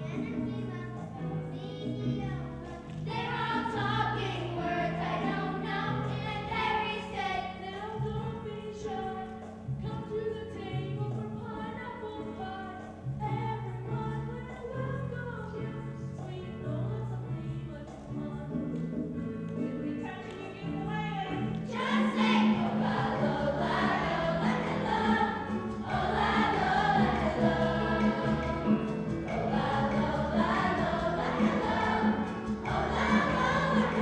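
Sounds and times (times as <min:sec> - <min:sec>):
instrumental accompaniment: 0:00.0 - 0:34.0
children's choir singing: 0:02.4 - 0:09.4, 0:21.6 - 0:34.0.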